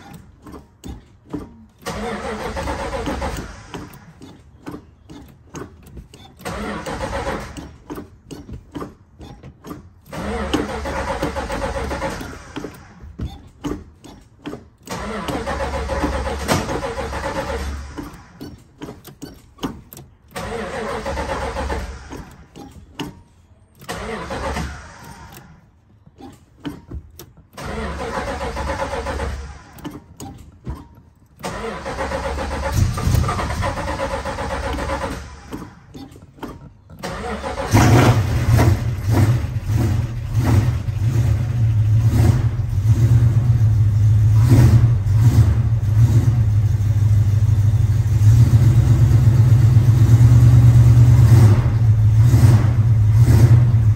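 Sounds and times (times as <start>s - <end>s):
starter cranking engine: 0.0s - 53.9s
car engine running and revving: 37.6s - 53.9s.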